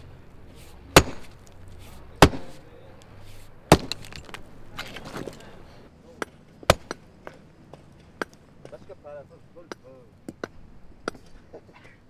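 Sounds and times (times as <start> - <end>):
hammer striking stone: 1.0 - 1.4, 2.2 - 2.6, 3.7 - 4.4, 6.2 - 7.4
stone clicks: 3.7 - 5.5.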